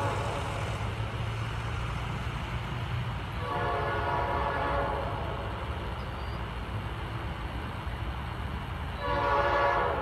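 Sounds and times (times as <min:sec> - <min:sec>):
locomotive air horn: 0:00.0 - 0:00.4, 0:03.4 - 0:05.4, 0:09.0 - 0:10.0.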